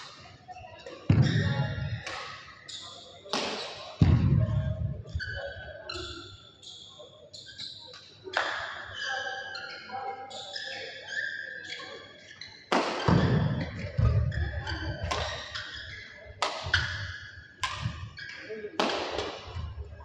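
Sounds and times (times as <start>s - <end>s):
shoes squeaking on court floor: 5.0s - 8.2s, 9.0s - 18.7s
rackets striking shuttlecock: 16.4s - 18.0s, 18.8s - 19.6s.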